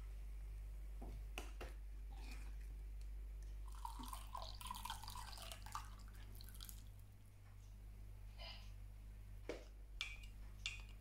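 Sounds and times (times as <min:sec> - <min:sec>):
milk trickling and dripping: 0:03.4 - 0:07.2.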